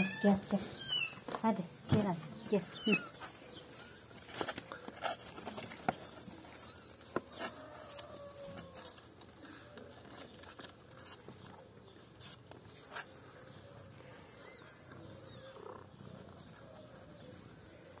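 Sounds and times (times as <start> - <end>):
kittens mewing: 14.0 - 16.4.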